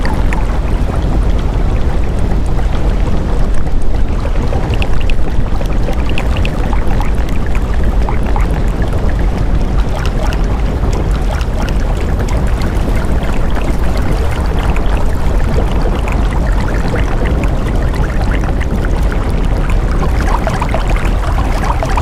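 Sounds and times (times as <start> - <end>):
deep low rumble: 0.0 - 22.0
rushing water: 0.0 - 22.0
water droplet plinks: 4.5 - 9.0, 9.8 - 17.4.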